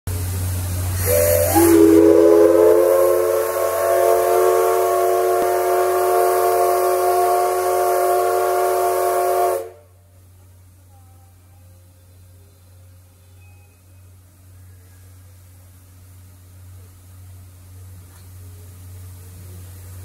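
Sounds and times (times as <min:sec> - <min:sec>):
hissing steam: 0:00.1 - 0:09.9
steam whistle blowing: 0:01.0 - 0:10.0.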